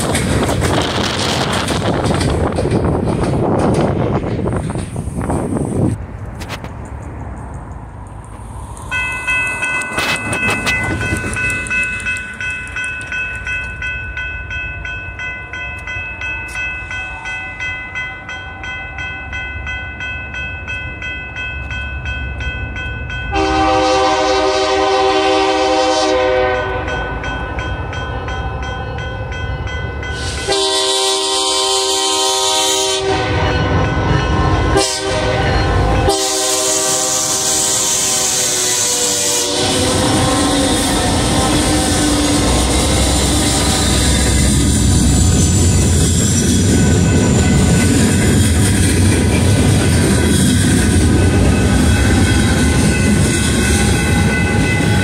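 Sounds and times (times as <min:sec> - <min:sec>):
diesel locomotives rumbling: 0:00.0 - 0:55.0
train air horn blasts: 0:23.3 - 0:27.0, 0:30.2 - 0:45.3.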